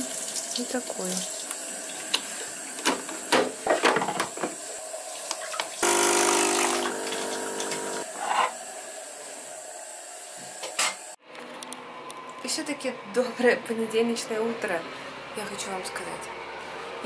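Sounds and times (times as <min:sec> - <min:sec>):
coffee machine pump buzzing: 0:05.8 - 0:08.6.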